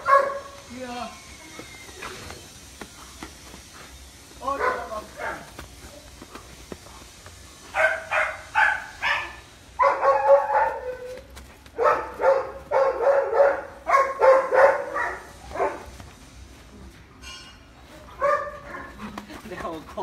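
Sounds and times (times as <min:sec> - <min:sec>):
dog barking: 0:00.0 - 0:00.6, 0:04.6 - 0:05.5, 0:07.7 - 0:11.2, 0:11.8 - 0:15.9, 0:18.2 - 0:19.0.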